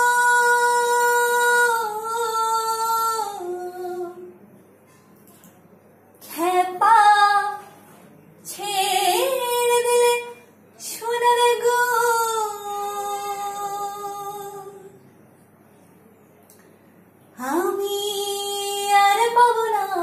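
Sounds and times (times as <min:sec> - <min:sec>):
woman singing unaccompanied: 0:00.0 - 0:04.4, 0:06.2 - 0:07.8, 0:08.4 - 0:15.0, 0:17.4 - 0:20.0.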